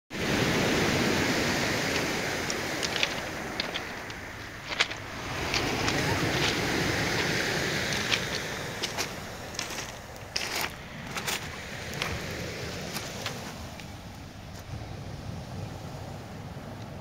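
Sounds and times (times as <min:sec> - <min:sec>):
surf washing on pebble beach: 0:00.1 - 0:17.0
pebbles clicking together: 0:01.9 - 0:12.2.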